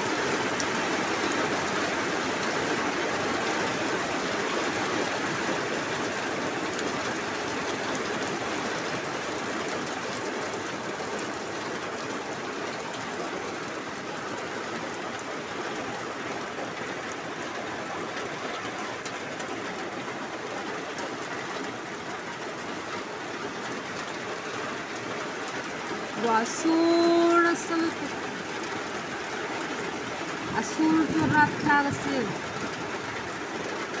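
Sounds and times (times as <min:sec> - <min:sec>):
heavy rain on metal roof: 0:00.0 - 0:34.0.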